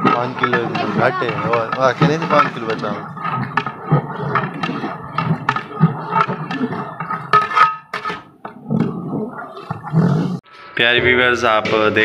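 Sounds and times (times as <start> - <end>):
metal ladle scraping a pot: 0.0 - 9.9.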